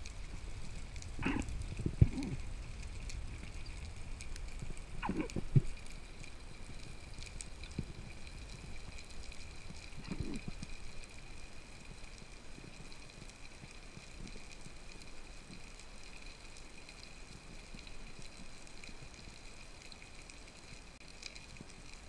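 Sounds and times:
low underwater rumble: 0.0 - 10.9
faint clicks: 0.0 - 22.0
faint steady hiss: 0.0 - 22.0.

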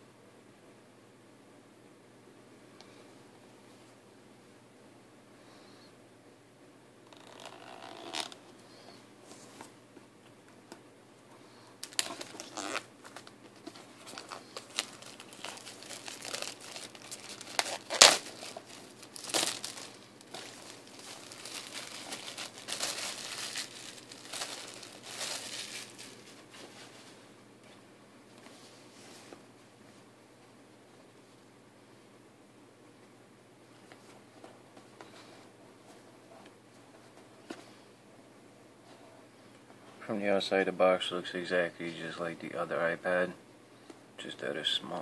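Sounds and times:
plastic shrink-wrap crinkling: 11.8 - 26.5.

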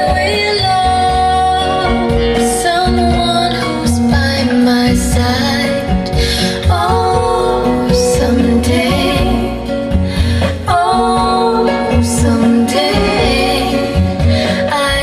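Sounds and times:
song over loudspeakers: 0.0 - 15.0.

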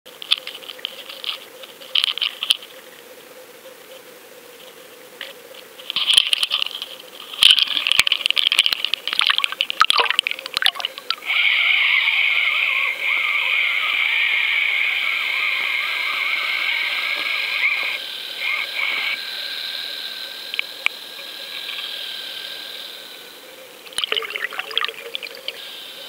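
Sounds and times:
water splashing and sloshing: 6.0 - 11.2, 23.9 - 25.5
underwater hiss: 11.2 - 23.4.

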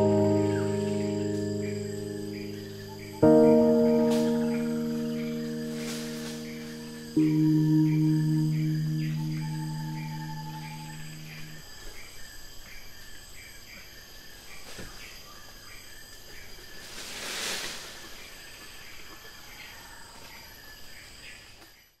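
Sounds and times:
steady high hum: 0.0 - 11.7
insects chirping: 0.0 - 21.9.

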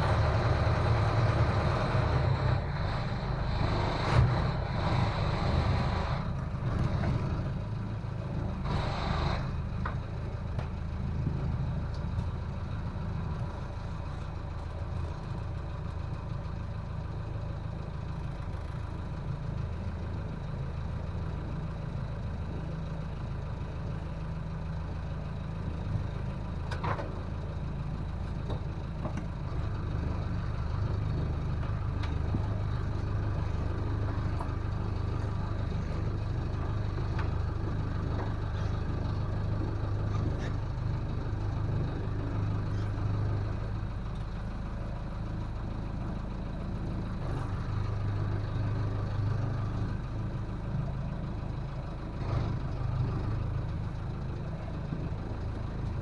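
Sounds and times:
boat engine running: 0.0 - 11.7.

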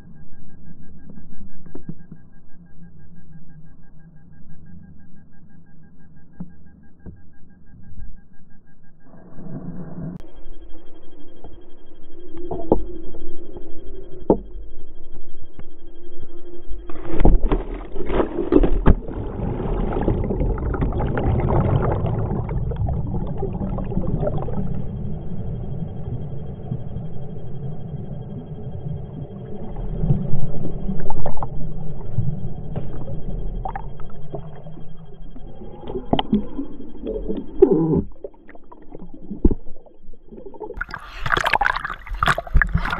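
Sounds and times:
water rushing in a slide: 17.9 - 24.8.

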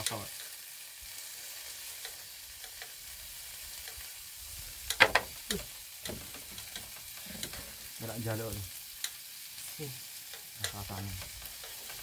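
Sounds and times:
meat sizzling in oil: 0.0 - 12.0
utensil clattering in pan: 4.9 - 7.9.

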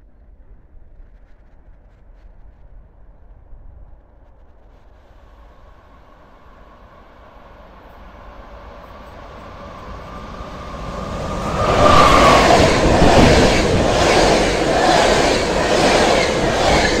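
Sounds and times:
train passing at speed: 5.2 - 17.0.

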